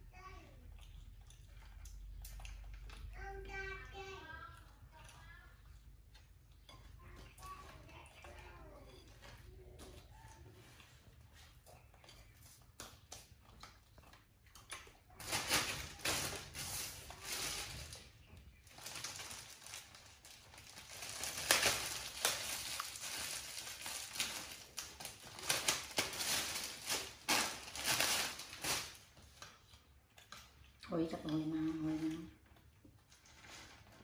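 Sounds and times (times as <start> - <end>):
plastic bag crinkling: 15.1 - 29.3, 33.0 - 34.0.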